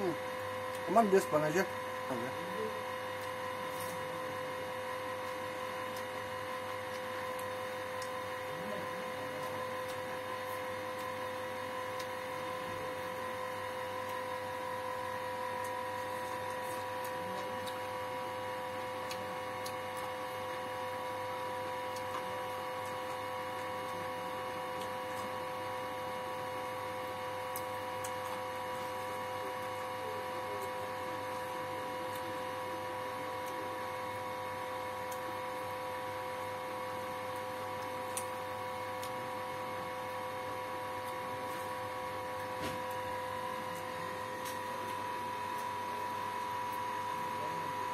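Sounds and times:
electrical hum: 0.0 - 47.9
clicks of eating with fingers: 5.2 - 8.2, 8.9 - 11.2, 11.8 - 12.2, 15.6 - 17.9, 21.9 - 24.0, 27.4 - 28.5, 37.3 - 39.2.

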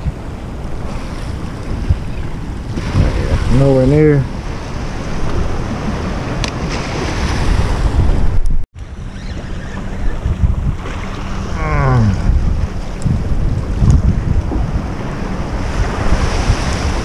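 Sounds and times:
surf washing against rocks: 0.0 - 8.4, 10.3 - 17.0
wind buffeting microphone: 0.0 - 17.0.

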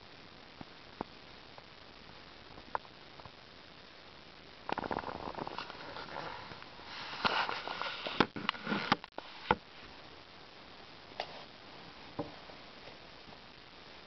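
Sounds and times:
book pages rustling: 4.8 - 9.0.

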